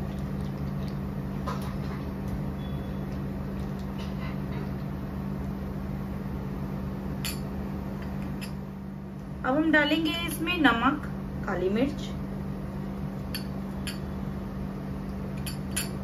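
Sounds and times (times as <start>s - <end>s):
electric cooktop hum: 0.0s - 16.0s
glass bowl clink: 13.4s - 14.1s, 15.4s - 16.0s.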